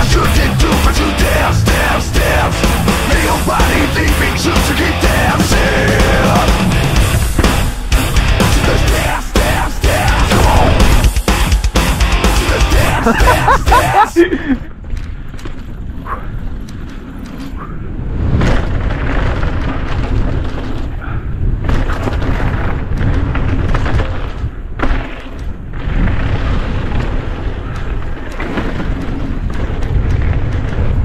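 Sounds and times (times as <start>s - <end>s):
wind buffeting microphone: 14.2s - 31.0s
mountain bike rattling over trail: 14.6s - 31.0s.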